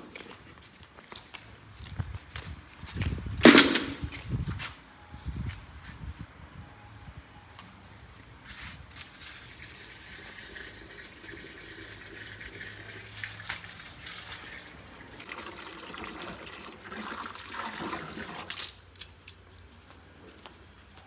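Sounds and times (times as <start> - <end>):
water running into metal bucket: 9.4 - 18.8.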